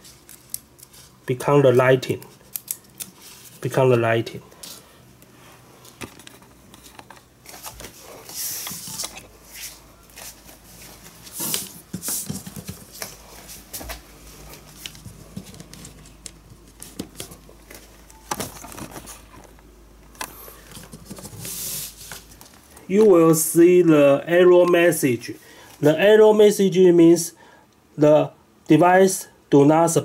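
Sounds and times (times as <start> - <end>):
cables and connectors handled: 0.0 - 1.3, 2.1 - 3.6, 4.5 - 23.2.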